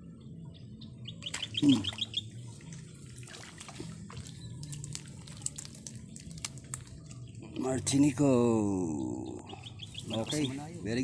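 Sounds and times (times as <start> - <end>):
pond water splashing: 1.2 - 7.1
high chirps: 8.9 - 10.7.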